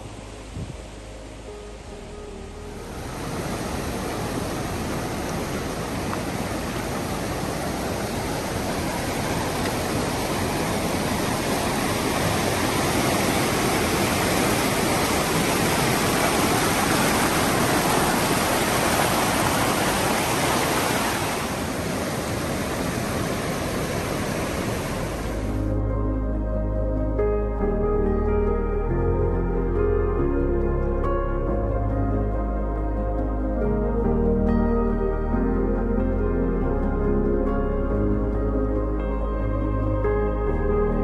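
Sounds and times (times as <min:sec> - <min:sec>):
stream rushing over rocks: 0:00.0 - 0:25.8.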